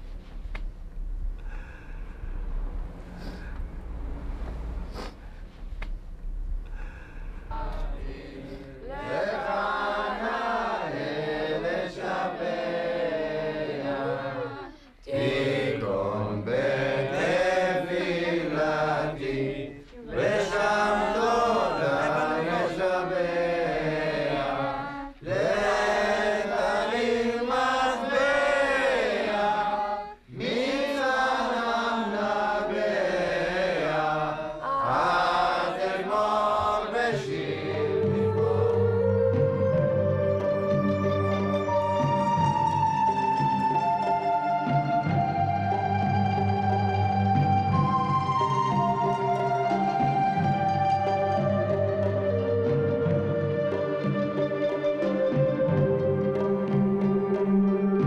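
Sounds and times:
group chanting a prayer: 0:06.8 - 0:39.0.

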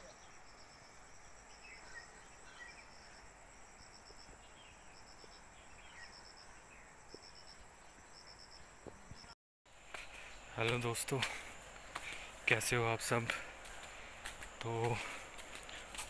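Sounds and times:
faint bird chirps: 0:00.0 - 0:09.4.

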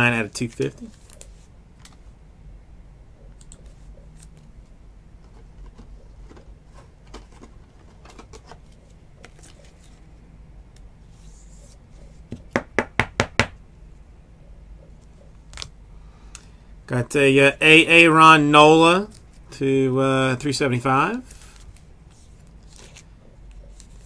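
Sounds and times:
cards rustling and tapping: 0:21.2 - 0:24.0.

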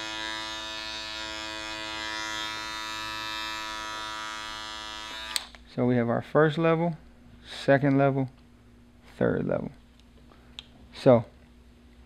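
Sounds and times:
electric hair clipper humming: 0:00.0 - 0:05.6.

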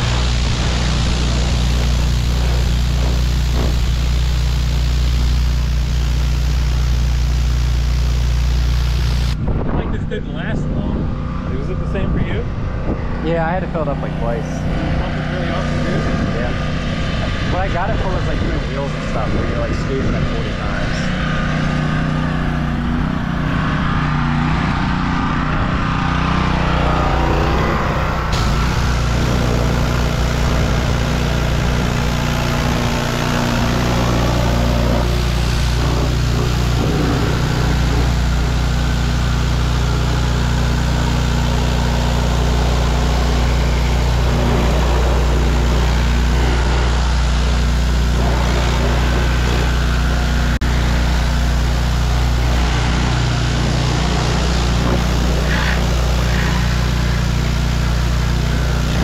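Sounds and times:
high-pressure water spray hiss: 0:00.0 - 0:09.4, 0:27.3 - 0:59.0
pressure washer engine running: 0:00.0 - 0:59.0.

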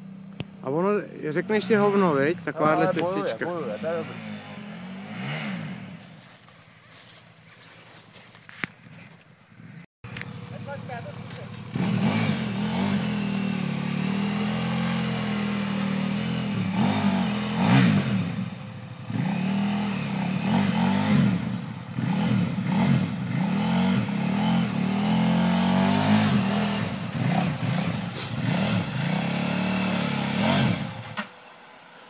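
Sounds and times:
motorcycle engine revving: 0:00.0 - 0:07.2, 0:09.6 - 0:31.4.

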